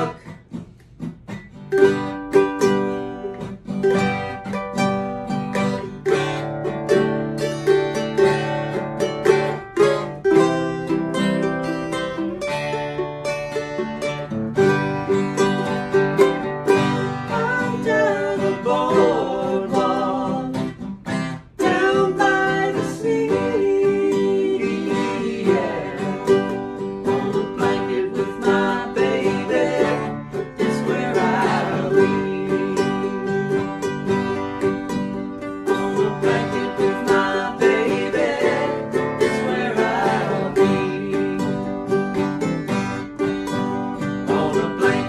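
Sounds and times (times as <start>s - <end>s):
man singing: 0.0s - 0.4s, 17.2s - 20.8s, 21.6s - 33.9s, 35.7s - 42.0s, 44.2s - 45.0s
acoustic guitar: 0.0s - 45.0s
ukulele: 0.0s - 45.0s.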